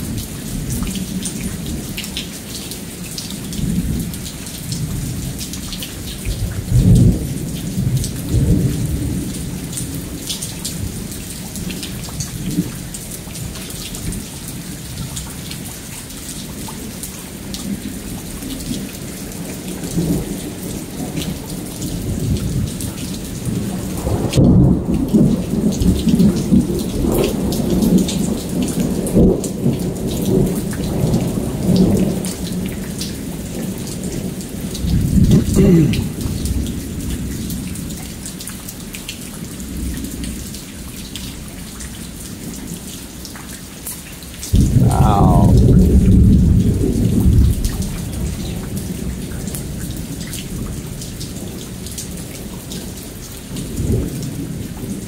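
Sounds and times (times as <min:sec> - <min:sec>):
heavy rain: 0:00.0 - 0:55.0
thunder rumbling: 0:44.6 - 0:46.3.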